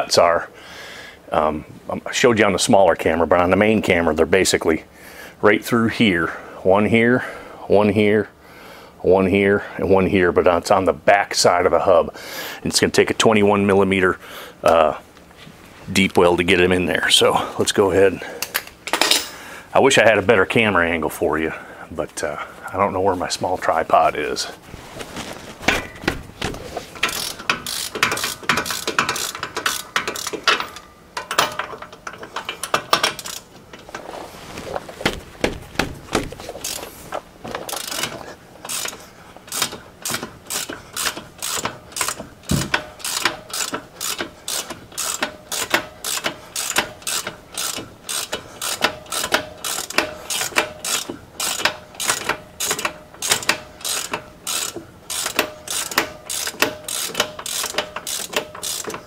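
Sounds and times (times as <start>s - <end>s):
ratchet clicking: 27.0s - 33.5s, 36.6s - 36.9s, 37.7s - 59.0s.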